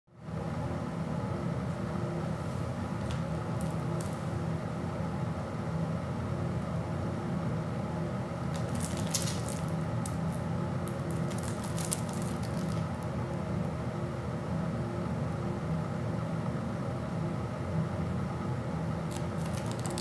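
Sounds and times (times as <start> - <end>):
steady low hum: 0.1 - 20.0
plastic wrap crinkling: 3.0 - 4.3, 8.5 - 13.1, 19.1 - 20.0.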